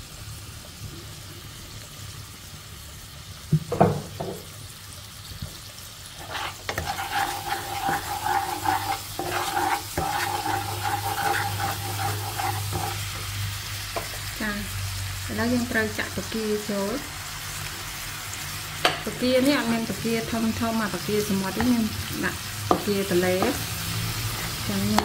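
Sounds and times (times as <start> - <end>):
garlic and sauce sizzling in oil: 0.0 - 25.0
wooden spatula stirring in wok: 6.1 - 13.3, 22.7 - 25.0.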